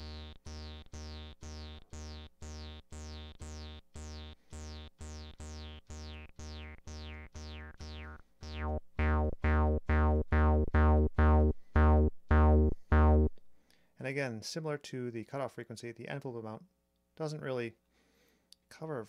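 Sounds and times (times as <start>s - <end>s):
bass synth with filter sweeps: 0.0s - 13.5s.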